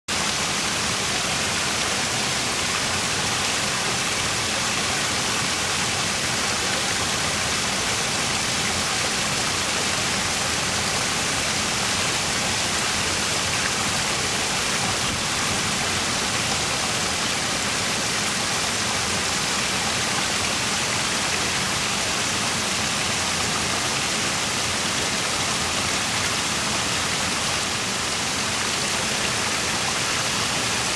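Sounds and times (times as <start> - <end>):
small waterfall splashing into pond: 0.1 - 30.9.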